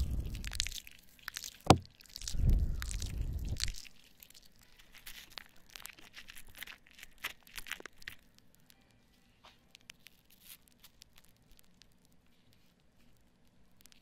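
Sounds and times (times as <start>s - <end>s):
foam bubbles crackling and popping: 0.0s - 8.4s.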